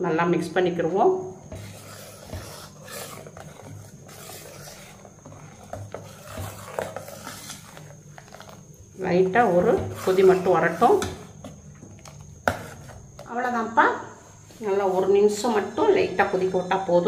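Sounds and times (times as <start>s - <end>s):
ladle scraping metal pot: 1.4s - 13.0s.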